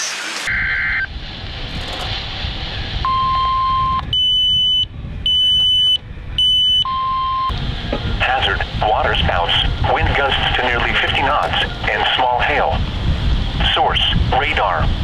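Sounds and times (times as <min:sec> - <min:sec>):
wind and sea noise: 0:00.5 - 0:15.0
radio alert tone: 0:08.2 - 0:12.8.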